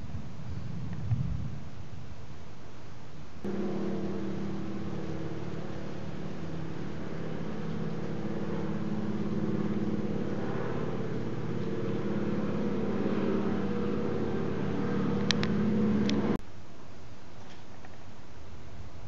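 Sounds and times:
plane engine droning: 0:03.2 - 0:16.4.

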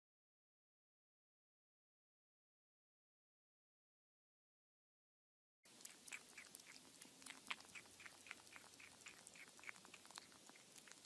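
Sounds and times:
kitten eating mouth clicks: 0:05.7 - 0:11.0.

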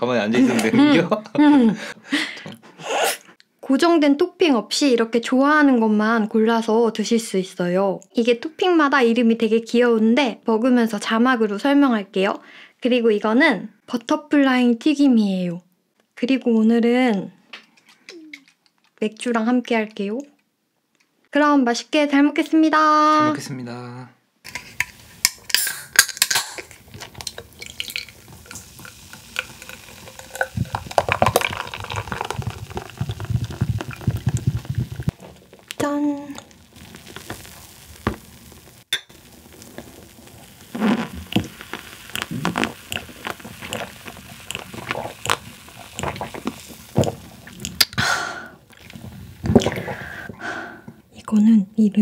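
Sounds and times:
beer fizzing as poured: 0:24.5 - 0:47.9.

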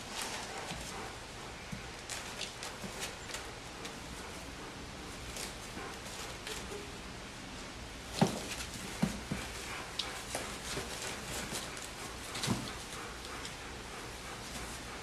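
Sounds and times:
small scuffling bumps: 0:01.7 - 0:04.4, 0:08.1 - 0:13.6.

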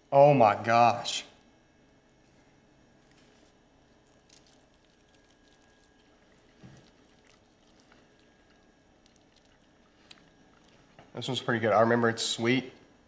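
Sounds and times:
people chewing wetly: 0:03.0 - 0:11.2.

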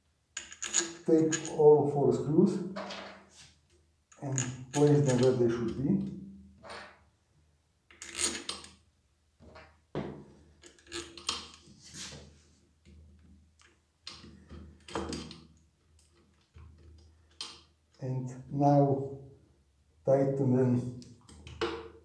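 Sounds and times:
metal parts clinking and scraping: 0:00.4 - 0:01.6, 0:10.6 - 0:11.6.

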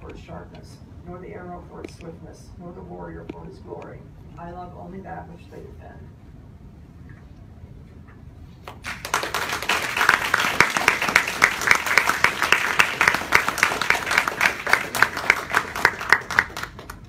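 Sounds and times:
audience applauding: 0:08.7 - 0:17.0.

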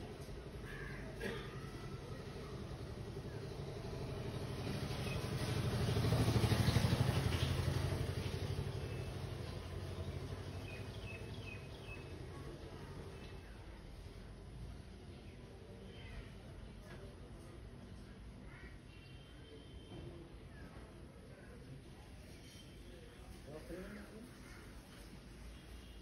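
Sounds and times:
vehicle engine passing by: 0:02.1 - 0:12.2.

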